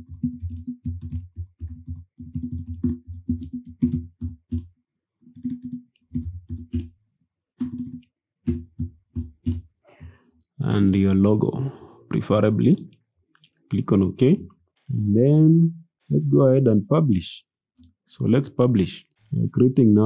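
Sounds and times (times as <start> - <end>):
keyboard typing: 0.0 - 7.0, 7.6 - 9.8.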